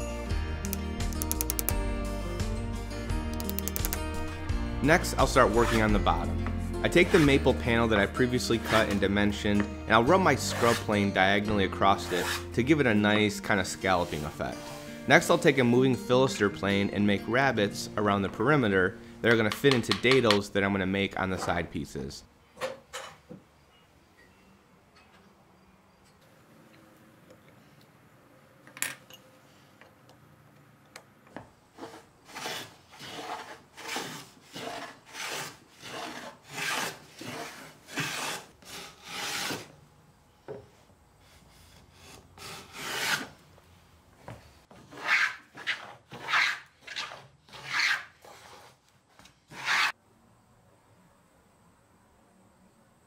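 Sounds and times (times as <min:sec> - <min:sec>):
hand plane shearing through wood: 0:05.4 - 0:06.0, 0:06.9 - 0:07.4, 0:08.4 - 0:09.0, 0:10.4 - 0:11.0, 0:12.0 - 0:12.5, 0:31.8 - 0:39.7, 0:41.3 - 0:43.3, 0:49.5 - 0:50.0.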